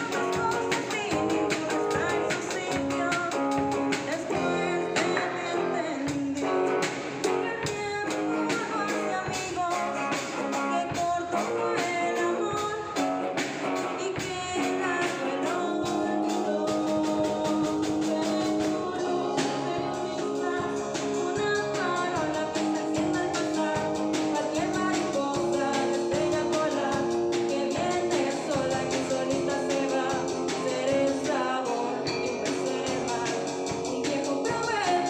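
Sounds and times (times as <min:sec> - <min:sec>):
drum kit steady beat: 0:00.0 - 0:35.0
electric guitar: 0:00.0 - 0:35.0
person singing into microphone: 0:00.0 - 0:35.0.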